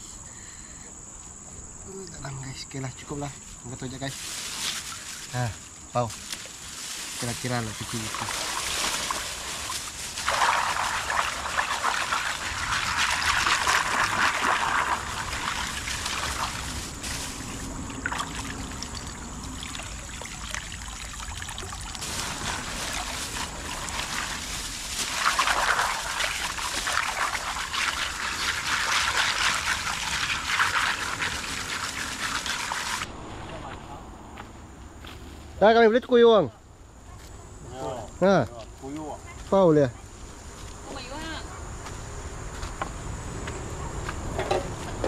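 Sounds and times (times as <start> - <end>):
water pouring from plastic bag: 4.1 - 33.1.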